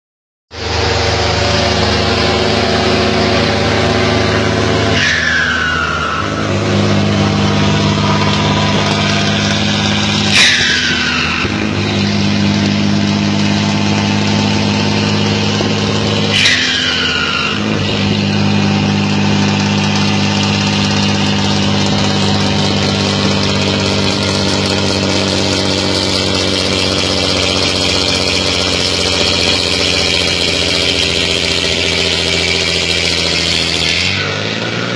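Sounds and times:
diesel truck engine under load: 0.5 - 34.9
turbo whistle falling: 4.3 - 11.8.

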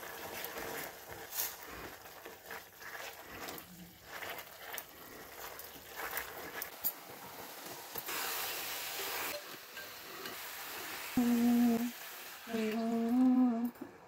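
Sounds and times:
food sizzling in a pan: 0.0 - 13.7
person humming: 11.2 - 11.9, 12.5 - 14.0.

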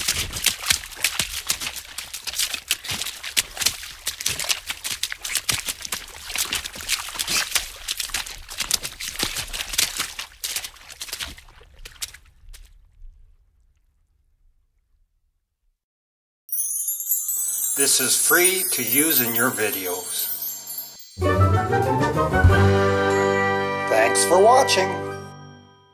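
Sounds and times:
water splashing: 0.0 - 14.8.

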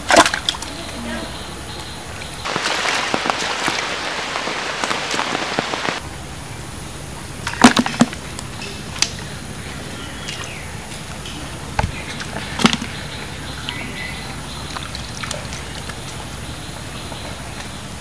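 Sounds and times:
sharp wet splashes: 0.0 - 1.0, 1.7 - 6.0, 7.4 - 9.3, 11.8 - 17.8.

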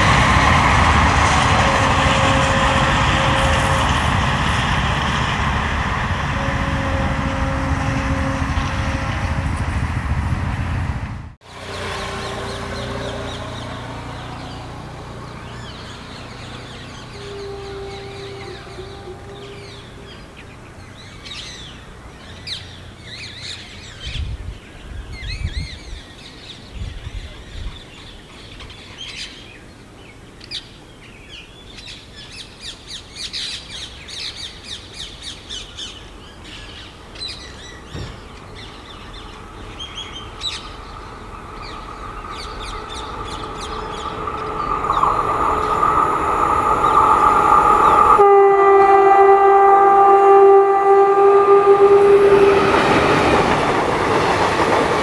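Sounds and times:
locomotive horn blast: 0.0 - 10.0, 11.4 - 23.6, 38.9 - 53.9
approaching train: 0.0 - 55.0
birds chirping: 11.6 - 50.0.

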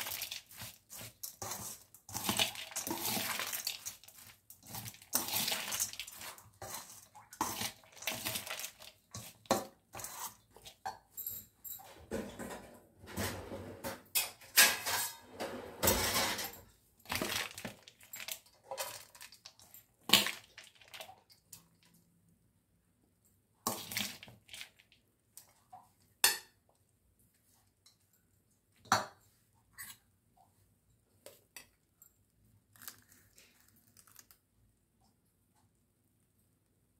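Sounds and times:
spoon scraping steel bowl: 0.0 - 10.8.

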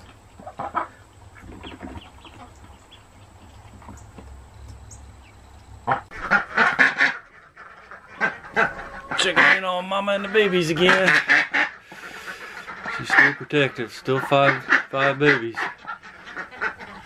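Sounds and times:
duck quacking harshly: 5.9 - 17.0.

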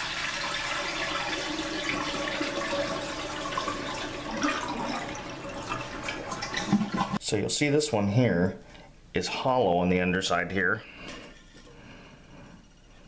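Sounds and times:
toilet flushing: 0.0 - 7.2.

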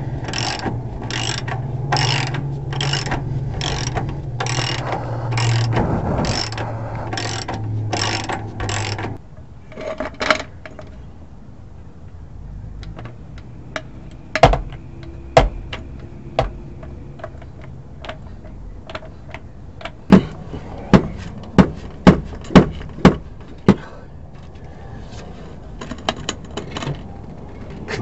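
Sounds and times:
sharp metal knocks: 0.2 - 9.2, 13.8 - 18.3, 19.8 - 23.8.

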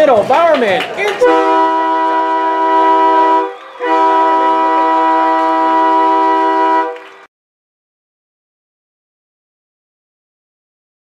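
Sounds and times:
loud air horn chord: 1.2 - 7.3.

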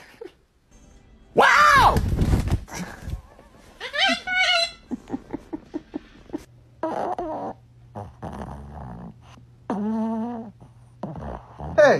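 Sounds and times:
man laughing: 4.1 - 6.5.

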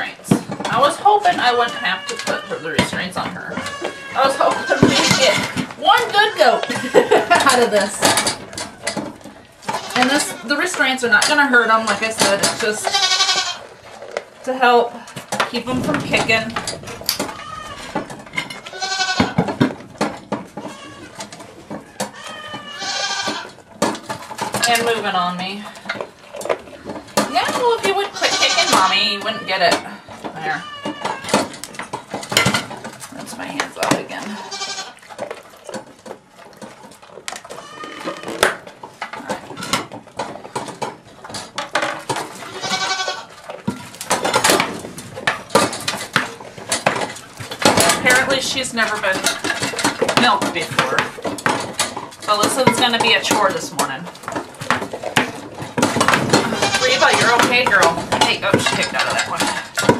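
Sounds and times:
sharp knocks and clatter: 2.6 - 13.2, 15.0 - 59.9
goat bleating: 3.6 - 7.8, 9.6 - 10.6, 12.6 - 13.8, 17.2 - 19.4, 20.6 - 21.2, 21.8 - 23.6, 27.3 - 31.4, 34.4 - 35.1, 37.5 - 38.4, 42.4 - 43.4, 56.3 - 58.6.

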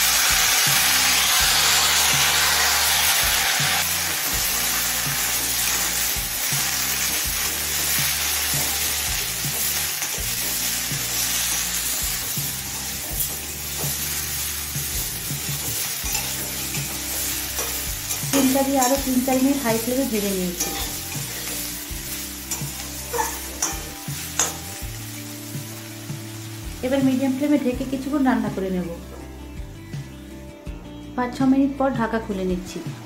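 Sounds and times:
beans sizzling in oil: 0.0 - 30.4
metal spatula scraping wok: 0.6 - 26.0.

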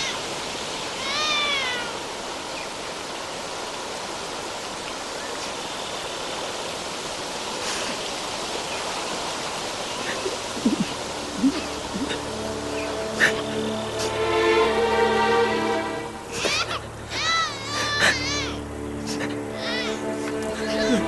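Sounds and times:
steady rushing hiss: 0.0 - 21.0
newborn baby crying: 16.4 - 18.6, 19.6 - 20.0.

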